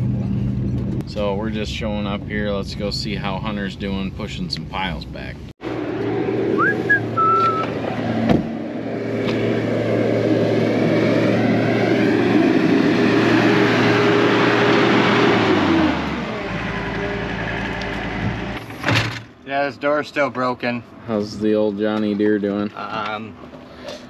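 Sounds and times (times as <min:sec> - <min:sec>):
diesel engine running: 0:00.0 - 0:02.4, 0:05.6 - 0:18.8.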